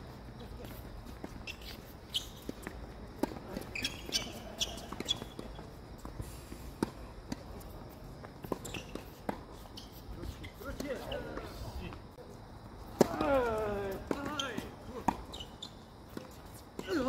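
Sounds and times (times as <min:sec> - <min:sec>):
tennis balls bouncing on court: 0:00.6 - 0:10.0, 0:12.6 - 0:17.0
tennis balls struck by rackets: 0:02.3 - 0:09.5, 0:12.8 - 0:15.3.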